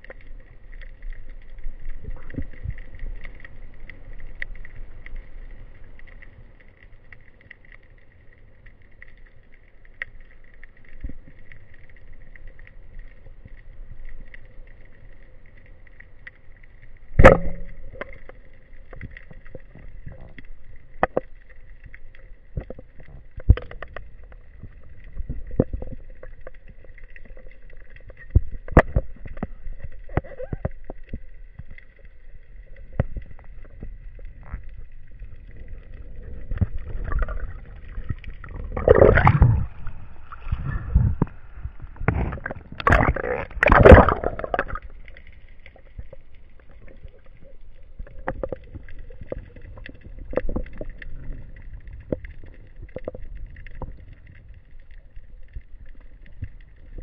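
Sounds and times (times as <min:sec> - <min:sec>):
faint underwater hum: 0:00.0 - 0:57.0
bubbling churning surges: 0:32.3 - 0:57.0.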